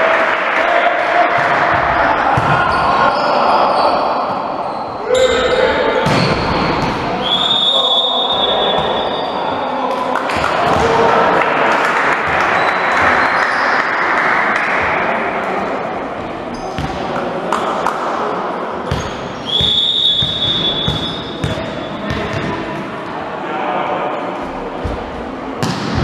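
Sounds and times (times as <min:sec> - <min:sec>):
crowd cheering and shouting: 0:00.0 - 0:16.0
referee's whistle blast: 0:07.2 - 0:09.3, 0:19.4 - 0:21.4.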